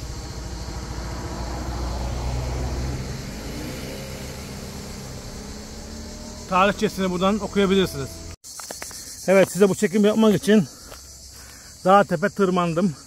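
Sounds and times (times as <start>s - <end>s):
vehicle passing: 0.0s - 8.4s.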